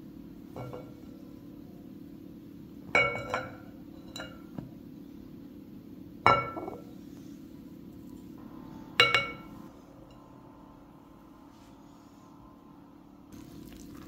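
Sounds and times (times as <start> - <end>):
faint steady hum: 0.0 - 14.0
glass bowl clinking: 0.6 - 1.0, 2.9 - 4.6, 6.2 - 6.9, 9.0 - 10.3.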